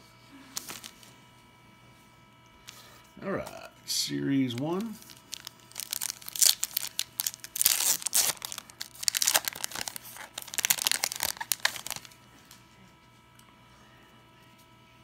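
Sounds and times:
foil wrapper tearing and crinkling: 0.6s - 1.0s, 4.5s - 12.2s.

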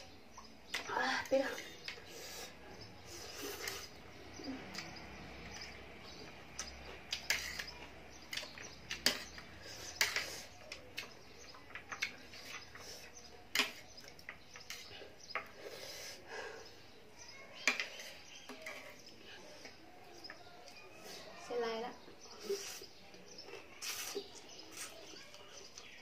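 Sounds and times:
slurping noodles: 2.1s - 4.0s, 22.4s - 25.2s.

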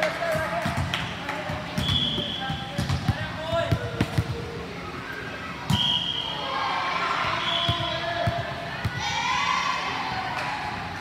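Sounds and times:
murmur of voices: 0.0s - 11.0s
basketball bouncing on court: 0.4s - 4.3s.

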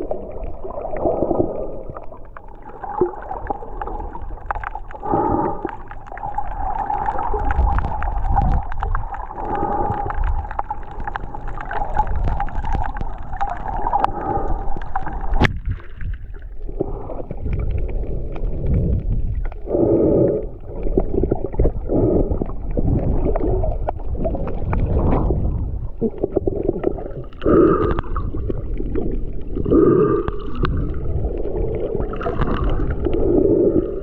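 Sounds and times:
muffled underwater water movement: 0.0s - 34.0s.

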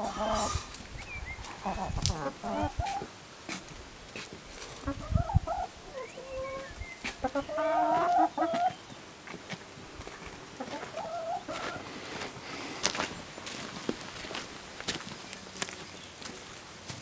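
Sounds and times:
hen drawn-out call: 0.0s - 0.7s, 1.4s - 3.1s, 4.8s - 8.7s
hens clucking: 0.0s - 13.6s.

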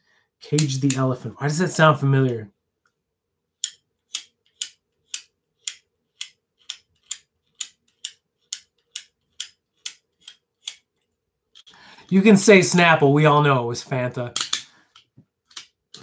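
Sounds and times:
sharp clicks: 0.5s - 1.1s.

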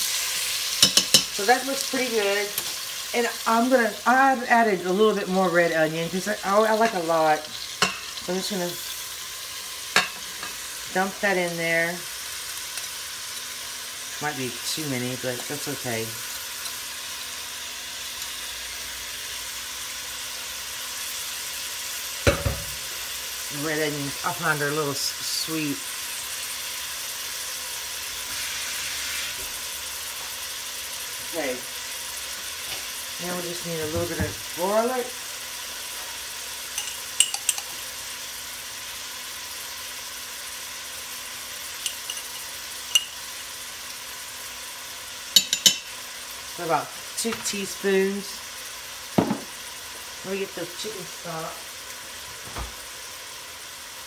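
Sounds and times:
meat and onion sizzling in a pot: 0.0s - 54.0s
metal spoon clicking: 36.8s - 37.7s, 42.9s - 43.2s.

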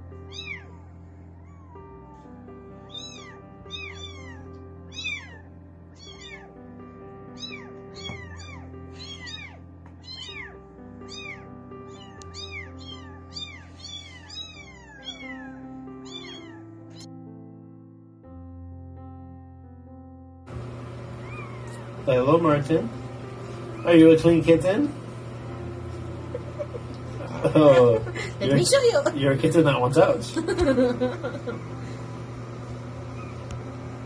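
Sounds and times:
background music: 0.0s - 20.4s, 22.0s - 31.6s
kittens meowing: 0.2s - 6.6s, 7.3s - 17.1s, 21.2s - 22.0s.

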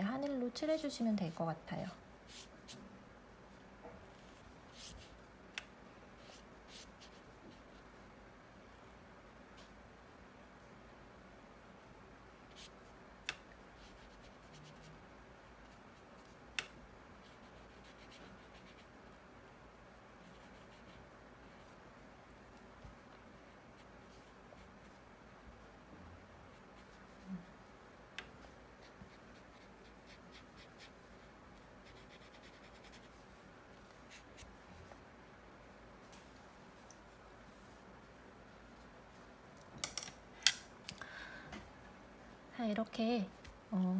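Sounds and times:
scratchy brush strokes: 2.2s - 2.9s, 3.5s - 5.2s, 6.2s - 8.0s, 12.5s - 13.0s, 13.6s - 15.0s, 17.2s - 19.0s, 20.2s - 25.8s, 26.4s - 27.8s, 28.4s - 35.0s.

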